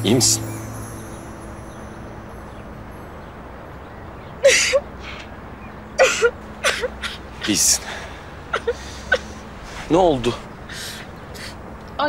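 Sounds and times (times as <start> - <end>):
woman crying in gasping sobs: 8.5 - 9.3.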